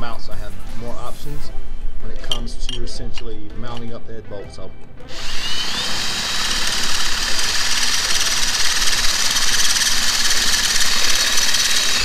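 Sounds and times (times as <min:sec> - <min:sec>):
drill motor whine: 0:05.1 - 0:12.0
power drill grinding into metal: 0:05.1 - 0:12.0.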